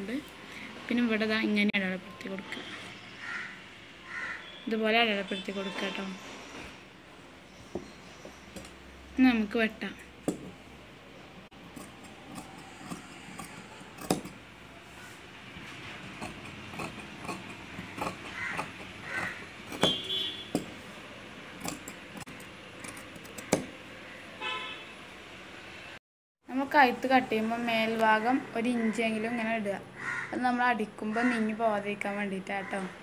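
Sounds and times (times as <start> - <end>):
scissors snipping fabric: 11.6 - 14.4, 16.0 - 20.7, 21.6 - 23.7.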